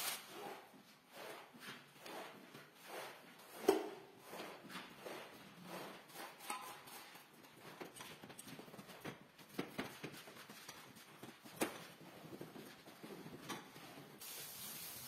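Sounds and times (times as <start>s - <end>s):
squeegee scraping water: 0.0s - 7.7s.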